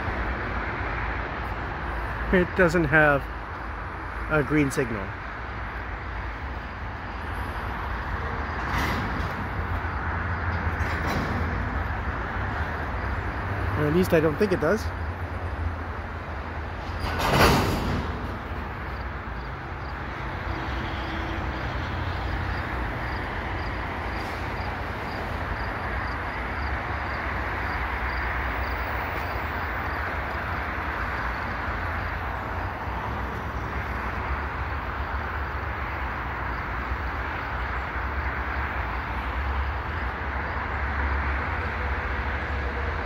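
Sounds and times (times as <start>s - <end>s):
train wheels rumbling: 6.4s - 36.4s.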